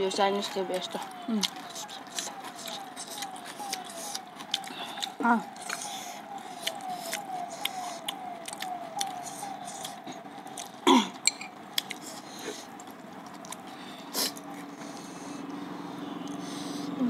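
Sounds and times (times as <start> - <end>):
chewing noodles: 0.4 - 17.0
cough or throat clearing: 10.8 - 11.2.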